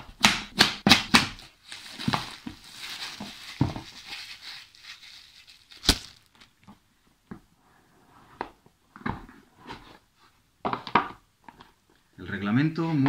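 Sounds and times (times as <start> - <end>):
sharp plastic crackles and snaps: 0.2 - 6.6
plastic film crinkling: 1.1 - 6.7.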